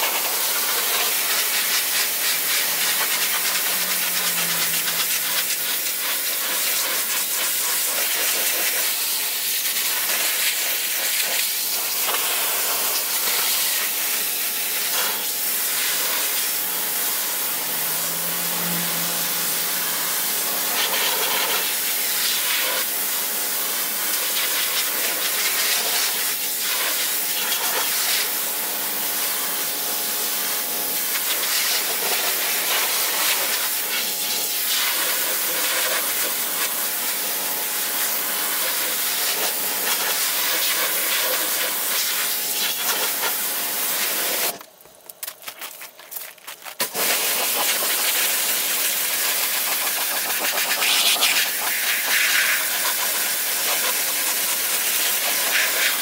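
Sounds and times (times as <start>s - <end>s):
pump humming: 0.0s - 7.3s, 12.2s - 22.3s
pressure washer spraying water: 0.0s - 44.6s, 46.8s - 56.0s.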